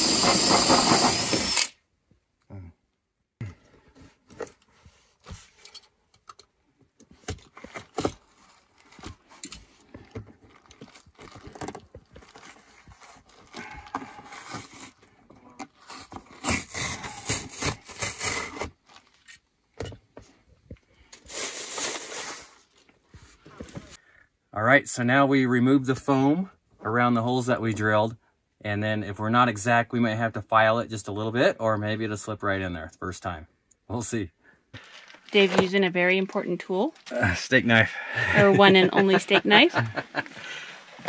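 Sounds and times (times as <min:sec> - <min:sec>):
hand tools on metal floor: 0:03.4 - 0:08.3
knife cutting and tearing foam: 0:07.2 - 0:19.4.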